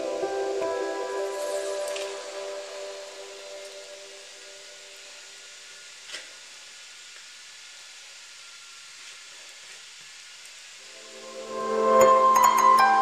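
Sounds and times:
background music: 0.0s - 4.5s, 10.9s - 13.0s
steady hiss: 0.0s - 13.0s.

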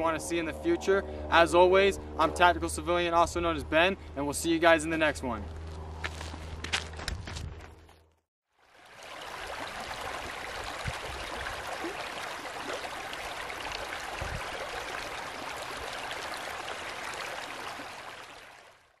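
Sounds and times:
creek splashing over stones: 8.5s - 18.9s.

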